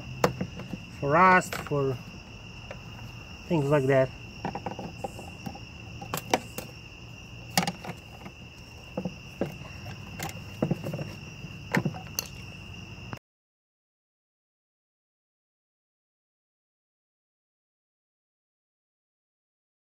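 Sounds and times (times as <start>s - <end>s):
crickets chirring: 0.0s - 13.2s
hard plastic clicks and knocks: 0.2s - 0.8s, 4.4s - 6.7s, 7.5s - 12.3s.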